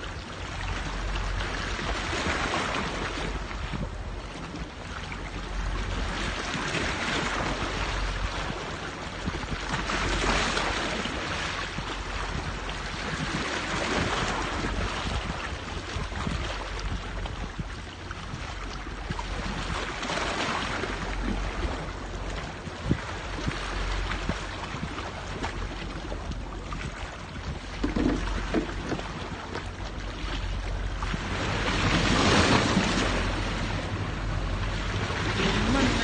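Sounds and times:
wind on microphone: 0.0s - 36.0s
waves washing on rocky shore: 30.9s - 36.0s.

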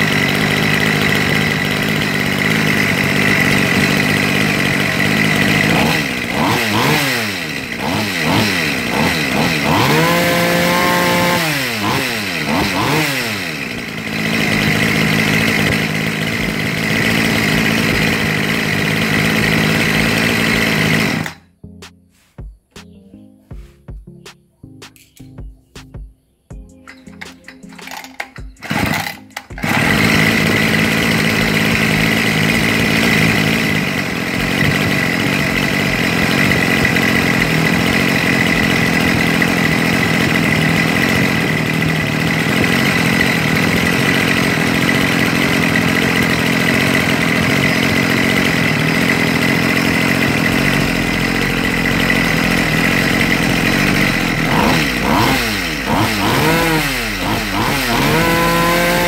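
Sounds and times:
engine revving: 0.0s - 21.4s, 27.8s - 59.0s
brushcutter engine starting and idling: 0.0s - 21.5s, 26.8s - 59.0s.

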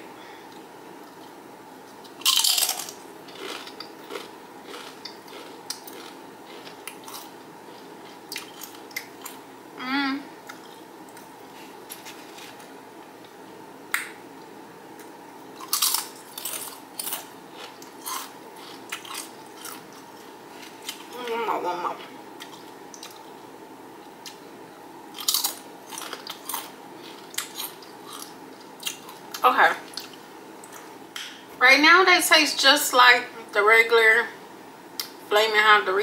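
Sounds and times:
crunching chips: 2.1s - 7.4s, 15.6s - 21.2s, 25.2s - 29.2s.

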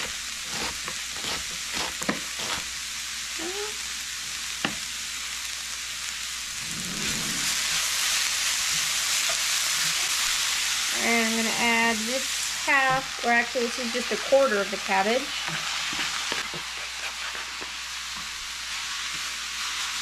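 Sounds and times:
food sizzling in oil: 0.0s - 20.0s
knife cutting on board: 0.5s - 2.6s.

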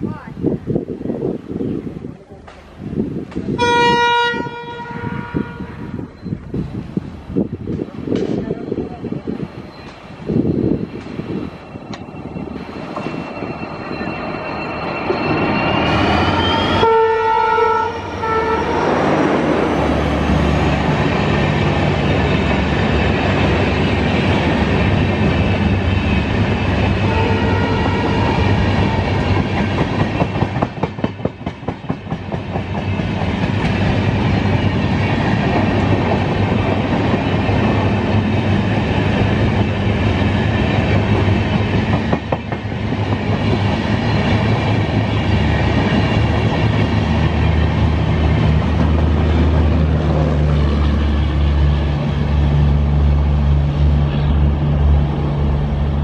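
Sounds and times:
train passing at speed: 0.0s - 56.0s.

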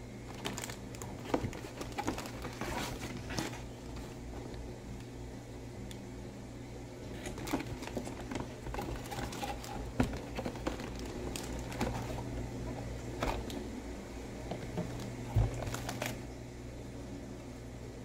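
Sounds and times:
steady low hum: 0.0s - 18.0s
cardboard rustling and scraping: 0.3s - 4.6s, 7.1s - 13.5s, 14.5s - 16.2s.

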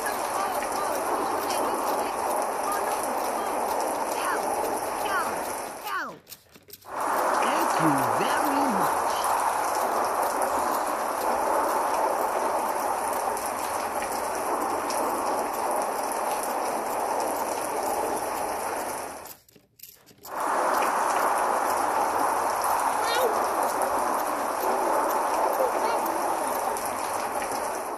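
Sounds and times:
steady rain falling: 0.0s - 27.9s.

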